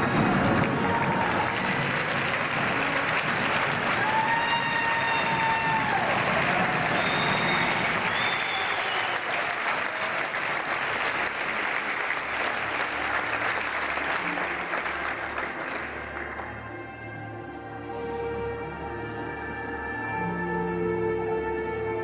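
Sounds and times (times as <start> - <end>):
audience applauding: 0.0 - 16.6.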